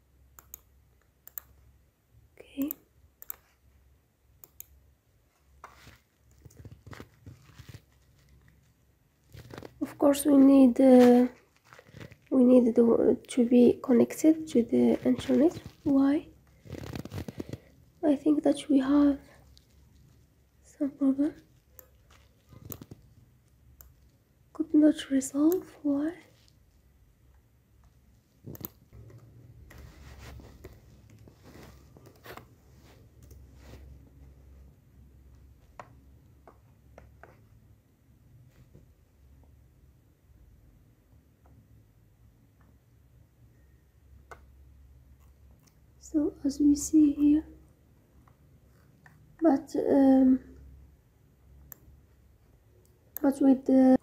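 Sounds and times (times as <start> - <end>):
computer mouse clicks: 0.3 - 1.6, 2.5 - 3.6, 4.4 - 4.8, 6.3 - 7.8, 21.7 - 24.1, 28.4 - 29.9, 33.2 - 33.5, 51.6 - 52.0
soft rustling: 5.2 - 24.7, 25.3 - 27.1, 27.8 - 34.7.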